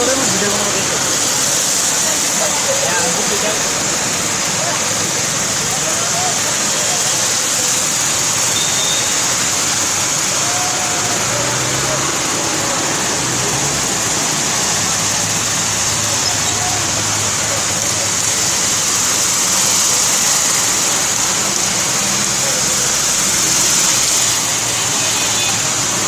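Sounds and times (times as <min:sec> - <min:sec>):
heavy rain pouring: 0:00.0 - 0:26.0
tyres splashing through floodwater: 0:00.0 - 0:26.0
vehicle engines running: 0:00.0 - 0:26.0.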